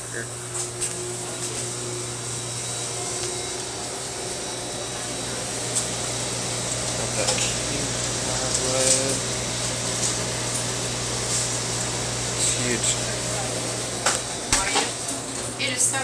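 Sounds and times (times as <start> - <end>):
freezer cases humming: 0.0 - 16.0
faint voices: 4.2 - 9.2.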